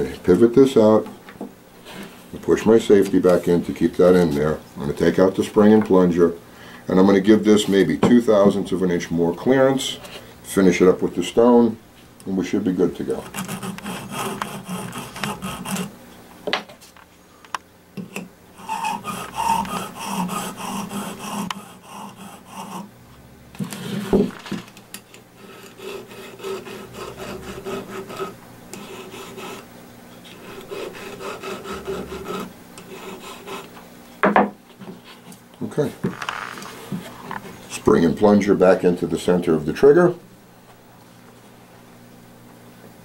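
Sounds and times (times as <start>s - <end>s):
file rasping on steel: 13.1s - 15.9s, 18.0s - 22.9s, 25.4s - 29.7s, 30.3s - 33.7s.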